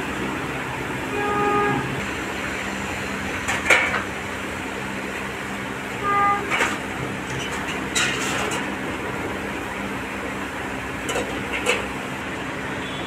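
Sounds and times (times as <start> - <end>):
street traffic: 0.0 - 13.0
vehicle horn toots: 1.1 - 2.0, 6.0 - 6.7, 12.8 - 13.0.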